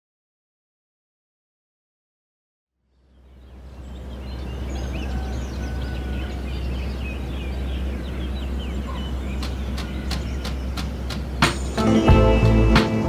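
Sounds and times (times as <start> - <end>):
small birds chirping: 2.8 - 13.0
sharp ticks: 9.4 - 11.8.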